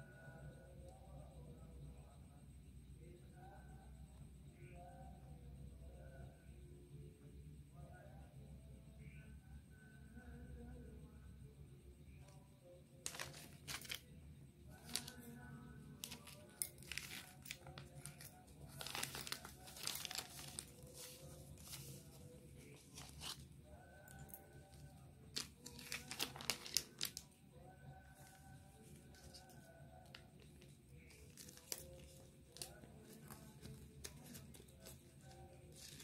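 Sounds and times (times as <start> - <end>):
plastic packets crinkling: 13.0 - 14.1, 14.8 - 15.3, 15.9 - 23.4, 24.1 - 27.3, 29.1 - 36.0.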